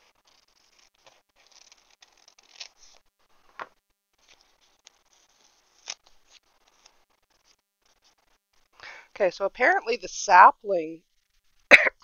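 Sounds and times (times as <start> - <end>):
paper tape rustling and peeling: 0.0 - 3.1, 4.1 - 8.7.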